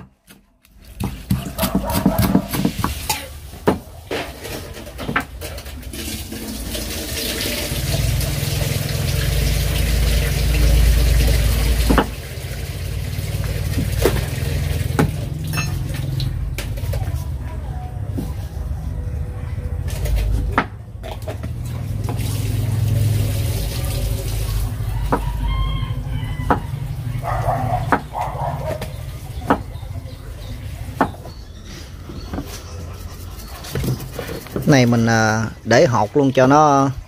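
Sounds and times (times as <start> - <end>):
tap water running into basin: 0.6 - 3.6, 4.4 - 17.2, 19.9 - 29.8
dishes clinking and knocking: 15.0 - 17.0.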